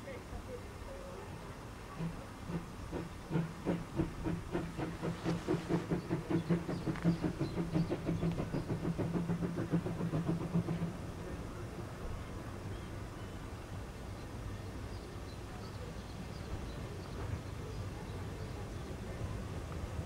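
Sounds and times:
steam hissing: 0:01.6 - 0:14.4
steam locomotive exhaust beats: 0:01.7 - 0:20.0.

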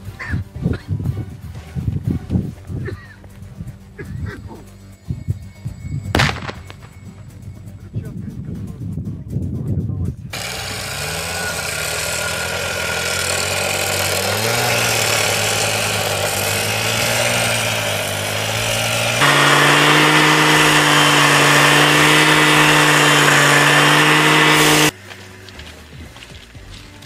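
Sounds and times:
cut-off saw engine running fast: 0:10.3 - 0:25.0
abrasive disc grinding steel: 0:10.4 - 0:25.0.

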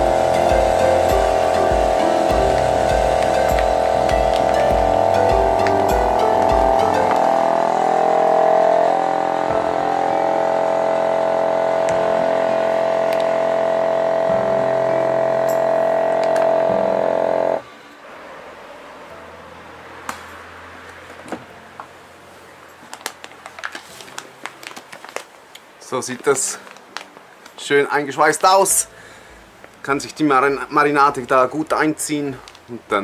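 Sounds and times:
vacuum sealer pump humming: 0:00.0 - 0:17.6
plastic bag rustling: 0:22.5 - 0:27.8.

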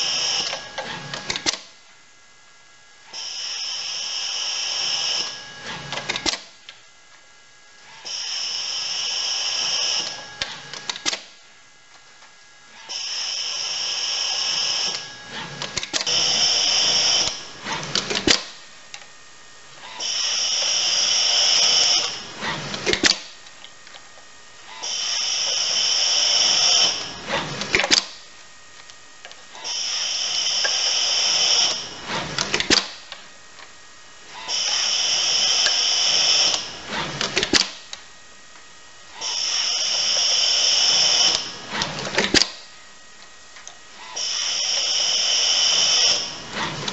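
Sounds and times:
robot arm whirring: 0:03.1 - 0:06.5, 0:07.9 - 0:11.4, 0:12.8 - 0:18.6, 0:19.8 - 0:24.0, 0:24.7 - 0:28.2, 0:29.2 - 0:33.1, 0:34.3 - 0:37.9, 0:39.2 - 0:42.7, 0:44.0 - 0:46.9.

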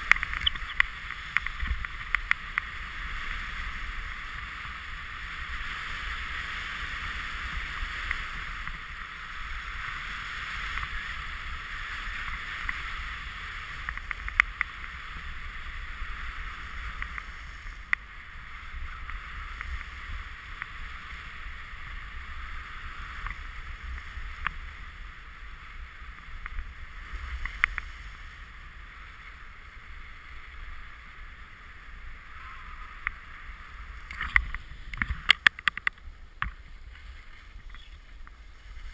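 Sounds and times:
sharp clicks: 0:00.0 - 0:02.7
wind rumble on microphone: 0:00.0 - 0:38.9
skis hissing on snow: 0:14.8 - 0:34.9.

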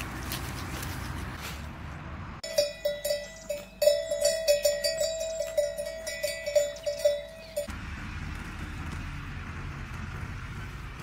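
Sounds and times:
cow bell clanking: 0:02.4 - 0:07.7.

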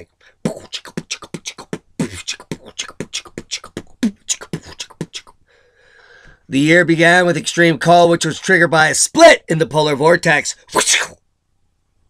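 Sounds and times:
man making mouth sound effects: 0:00.0 - 0:05.4, 0:10.7 - 0:11.2.

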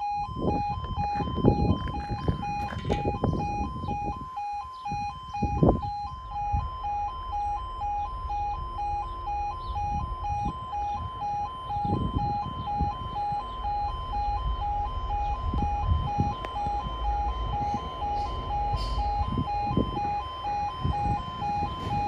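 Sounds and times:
two-tone level crossing alarm: 0:00.0 - 0:22.0.

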